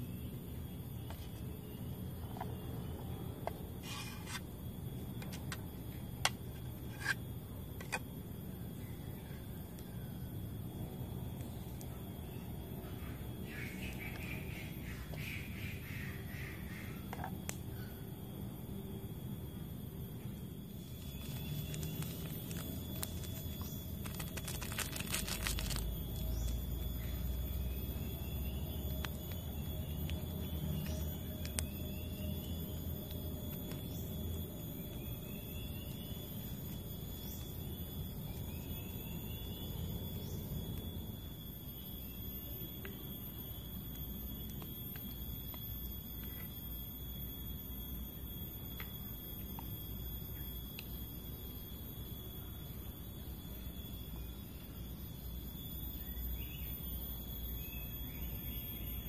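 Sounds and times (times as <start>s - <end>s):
insects droning: 0.0s - 59.0s
plastic sachet crinkling: 21.0s - 26.6s.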